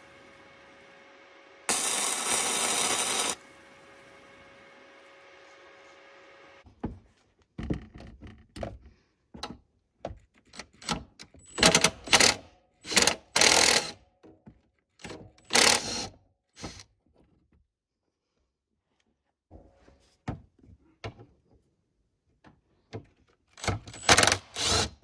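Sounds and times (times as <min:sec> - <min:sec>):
grinder on steel: 0:01.7 - 0:04.2.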